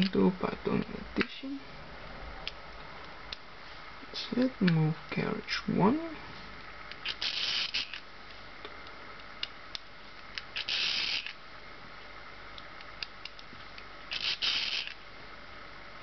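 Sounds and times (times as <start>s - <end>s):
calculator crank whirring: 7.0s - 8.0s, 10.5s - 11.4s, 14.1s - 15.0s.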